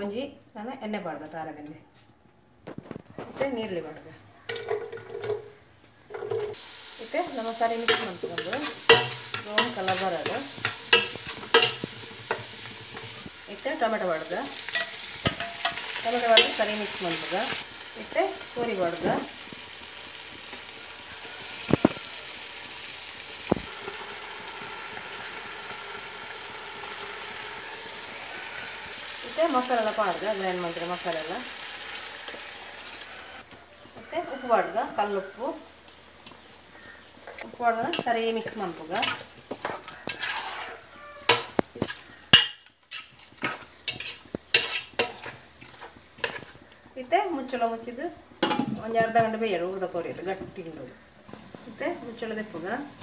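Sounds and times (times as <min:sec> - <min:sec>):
food sizzling in pot: 0:04.5 - 0:53.0
spatula scraping a pot: 0:07.9 - 0:13.3, 0:39.0 - 0:46.6.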